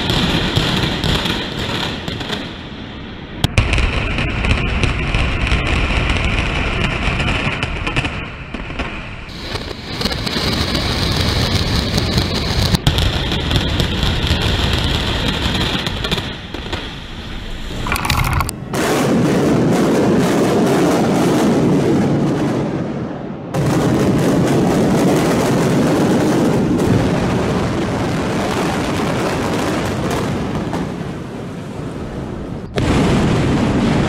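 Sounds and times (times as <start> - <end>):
building collapsing rumble: 16.0 - 20.6.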